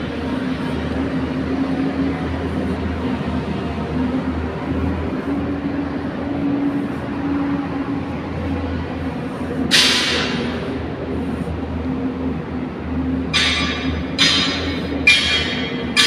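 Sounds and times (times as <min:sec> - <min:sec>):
machinery droning: 0:00.0 - 0:16.0.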